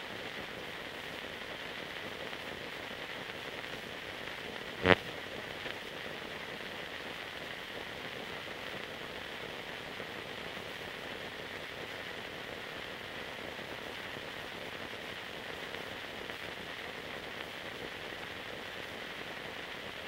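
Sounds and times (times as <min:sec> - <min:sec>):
film soundtrack hiss: 0:00.0 - 0:20.0.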